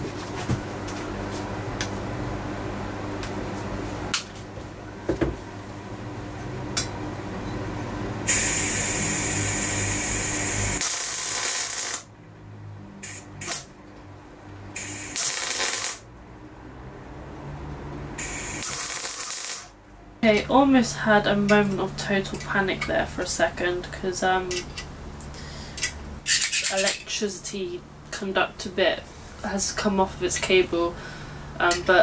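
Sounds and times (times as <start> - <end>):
welder machine hum: 5.6 - 12.2, 13.0 - 16.2, 17.5 - 19.9
welding arc hissing and crackling: 8.3 - 12.1, 13.0 - 13.7, 14.8 - 16.0, 18.2 - 19.8.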